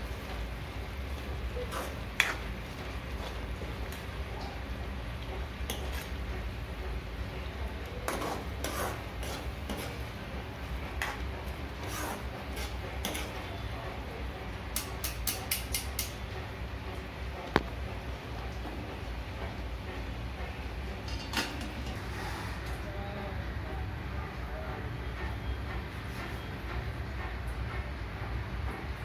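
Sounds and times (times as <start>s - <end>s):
steel utensils clinking: 21.0s - 22.0s.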